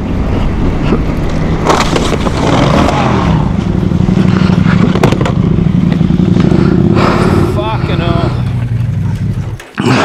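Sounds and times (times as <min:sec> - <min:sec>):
motorcycle engine idling: 0:03.4 - 0:09.7.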